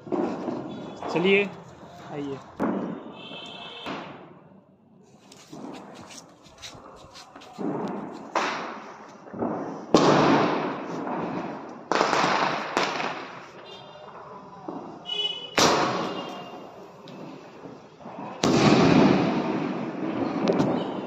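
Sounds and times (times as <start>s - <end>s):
firework bangs: 0.0s - 4.5s, 5.3s - 21.0s
firework whistling: 15.5s - 21.0s.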